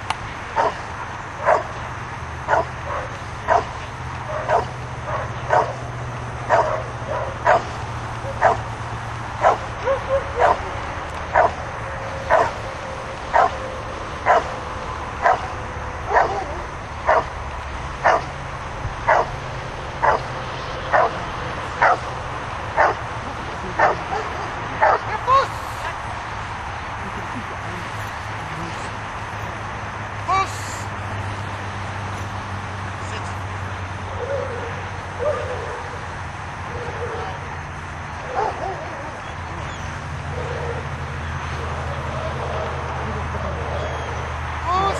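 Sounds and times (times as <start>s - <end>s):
dog barking: 0.6s - 0.8s, 1.4s - 1.8s, 2.5s - 5.9s, 6.5s - 8.7s, 9.4s - 11.6s, 12.3s - 12.6s, 13.3s - 14.6s, 15.2s - 17.3s, 18.0s - 18.4s, 19.1s - 19.4s, 20.0s - 20.3s, 20.9s - 21.2s, 21.8s - 22.1s, 22.8s - 23.0s, 23.8s - 26.0s, 38.3s - 38.9s.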